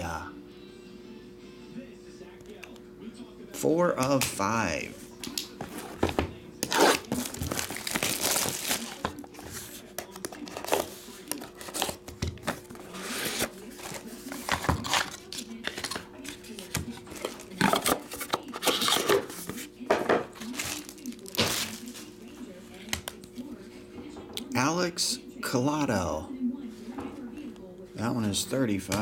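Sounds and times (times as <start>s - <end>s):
shrink-wrap tearing and crinkling: 6.6s - 9.2s, 20.5s - 22.1s.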